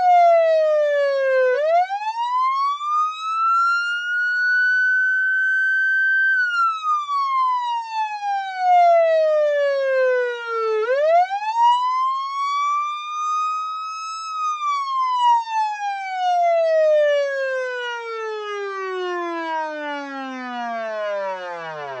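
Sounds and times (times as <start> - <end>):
police siren wailing: 0.0 - 22.0.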